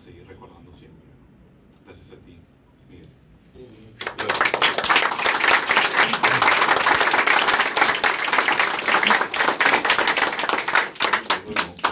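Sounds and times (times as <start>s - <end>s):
people applauding: 4.0s - 11.9s.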